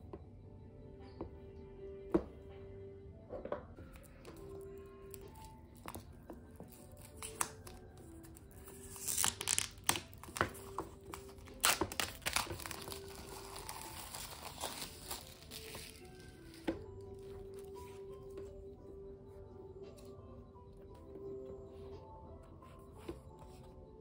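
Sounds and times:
soft background music: 0.0s - 24.0s
paper and packaging crinkling: 5.1s - 18.0s.

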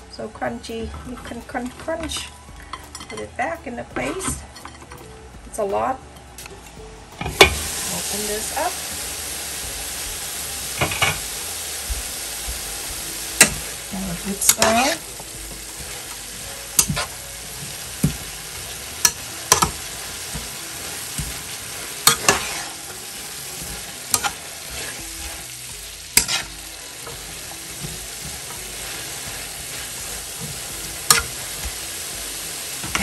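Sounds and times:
vegetables sizzling in a frying pan: 7.2s - 33.0s
spatula stirring vegetables: 7.3s - 33.0s.

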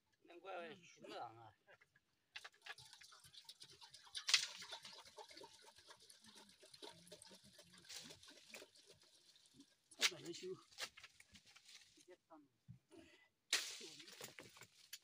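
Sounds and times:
liquid pouring into metal pot: 2.4s - 10.0s.

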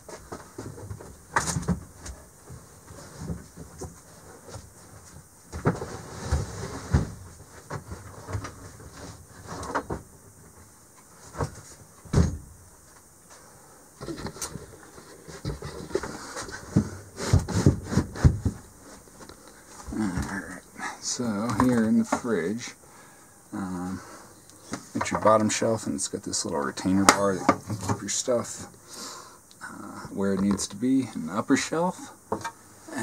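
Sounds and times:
fold-up bed knocking and rattling: 12.1s - 12.5s.

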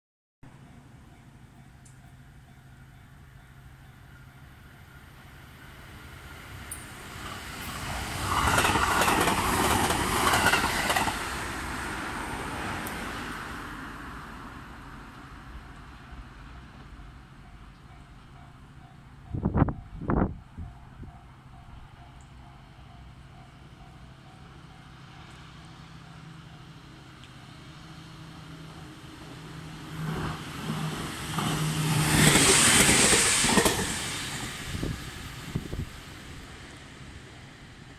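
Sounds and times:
electric train passing at speed: 0.5s - 37.9s
wheels clacking over rail joints: 8.0s - 11.4s, 30.0s - 34.6s.

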